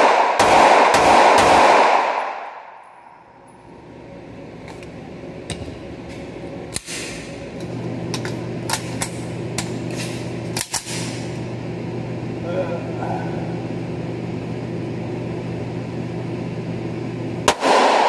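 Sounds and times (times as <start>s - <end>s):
pistol shots echoing: 0.0s - 2.8s, 17.5s - 18.0s
steady low hum: 0.0s - 18.0s.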